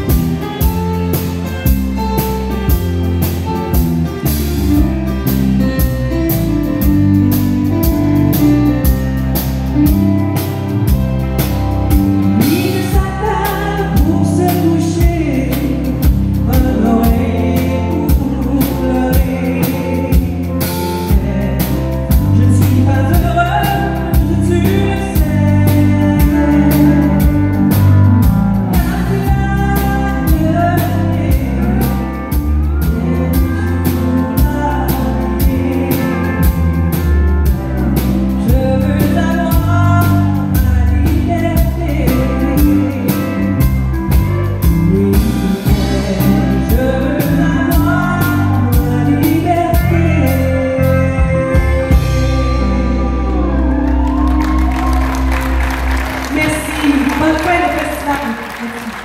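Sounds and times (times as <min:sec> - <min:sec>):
steady drum beat: 0:00.0 - 0:50.0
keyboard: 0:00.0 - 0:59.0
live country band playing: 0:00.0 - 0:59.0
woman singing into a microphone: 0:12.3 - 0:43.9, 0:44.5 - 0:54.9, 0:56.3 - 0:59.0.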